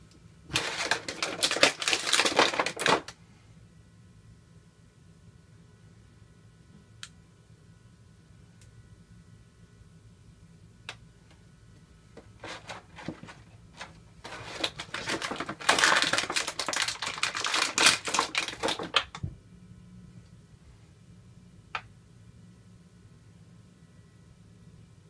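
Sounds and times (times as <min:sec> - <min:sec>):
plastic blister tray crackling: 0:00.5 - 0:03.2, 0:12.3 - 0:19.2.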